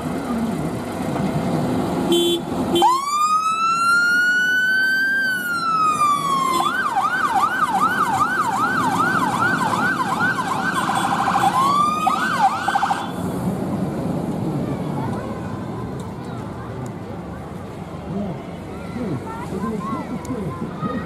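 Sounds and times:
diesel truck engine: 0.0s - 21.0s
fire engine siren wailing and yelping: 2.8s - 13.2s.

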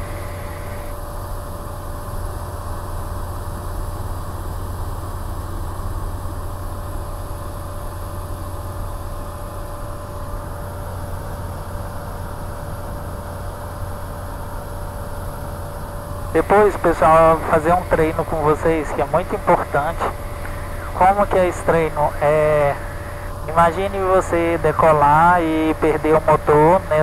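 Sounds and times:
thin steady whine: 0.0s - 1.9s, 8.8s - 27.0s
aircraft engine and propeller droning: 0.0s - 27.0s.

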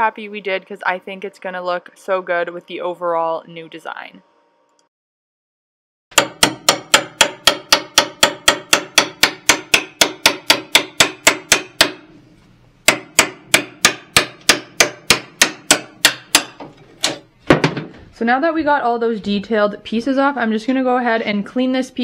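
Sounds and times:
hammer tapping metal scraper: 6.2s - 12.1s.

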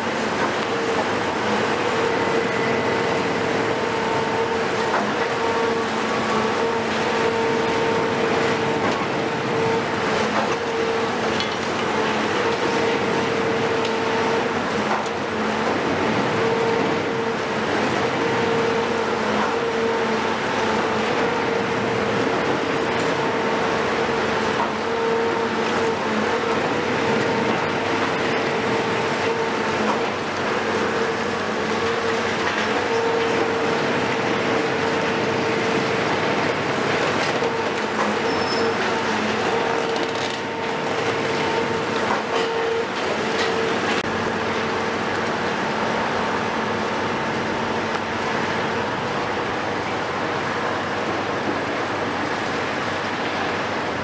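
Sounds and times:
excavator diesel and hydraulics whine: 0.0s - 54.0s.

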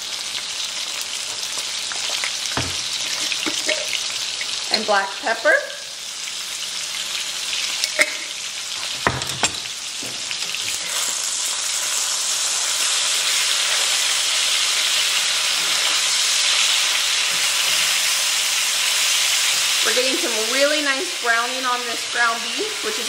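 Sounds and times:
beef sizzling in a skillet: 0.0s - 23.0s
sharp knocks: 2.6s - 2.9s.

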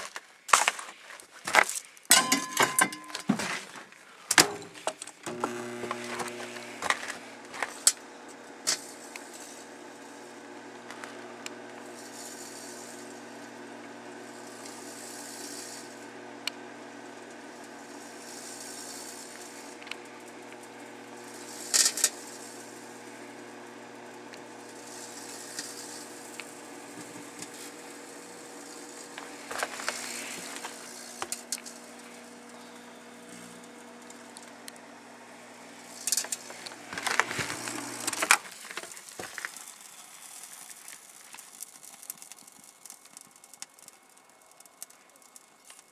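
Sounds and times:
crackles and pops: 4.0s - 45.9s
microwave oven humming: 4.4s - 40.3s
short hissing bursts: 27.4s - 32.6s.

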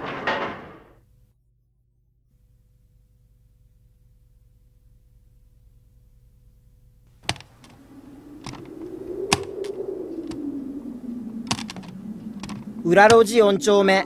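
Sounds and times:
faint hum: 0.9s - 14.0s
sharp clicks: 7.2s - 7.8s, 9.3s - 10.4s, 11.4s - 13.2s
low tone rising and sinking: 7.5s - 14.0s.

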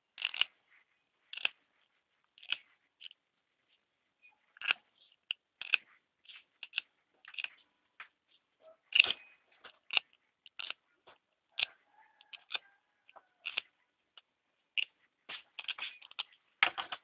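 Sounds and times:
small clicks and scratches of wire: 0.1s - 3.2s, 4.2s - 17.0s.

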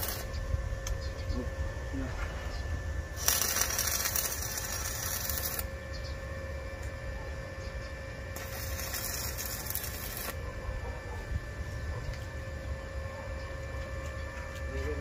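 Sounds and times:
arc welding crackling hiss: 0.0s - 0.4s, 3.1s - 5.7s, 8.3s - 10.4s
steady low rumble: 0.0s - 7.3s.

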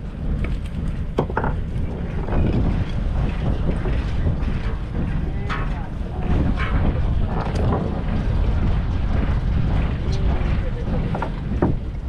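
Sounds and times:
boat engine rumble: 0.0s - 12.0s
wind buffeting microphone: 0.0s - 12.0s
knocks: 1.2s - 1.7s.

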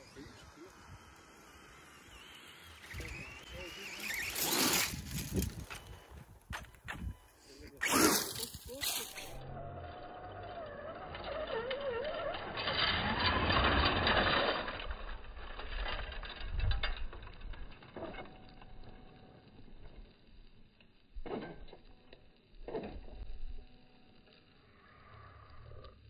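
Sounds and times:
electric motor revving and whining: 0.0s - 6.1s, 7.8s - 14.9s.

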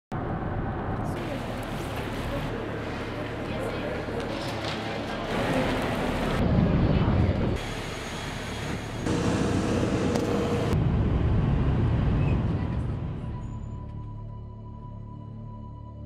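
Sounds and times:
turboprop engine whine: 5.4s - 13.8s
engine drone in cabin: 8.4s - 10.9s.

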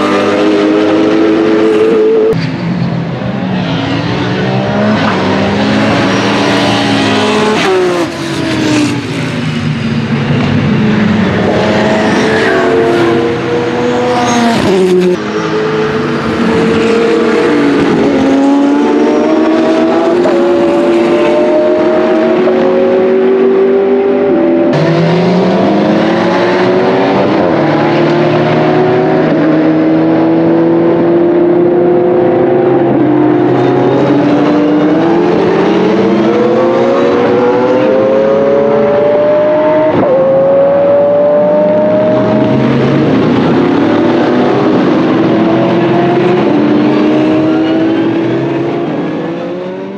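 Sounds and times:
other race car engines: 0.0s - 49.9s
race car engine accelerating: 3.6s - 49.9s.

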